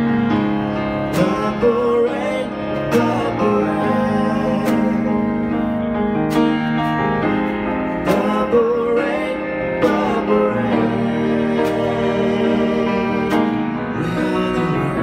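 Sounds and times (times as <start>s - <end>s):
grand piano: 0.0s - 15.0s
man singing into microphone: 1.1s - 5.6s, 8.0s - 15.0s.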